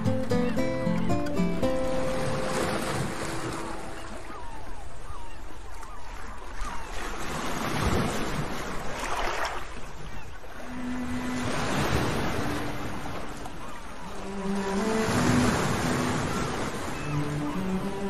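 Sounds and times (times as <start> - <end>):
soft sustained melody notes: 0.0 - 4.2, 10.5 - 18.0
sea waves washing: 0.0 - 18.0.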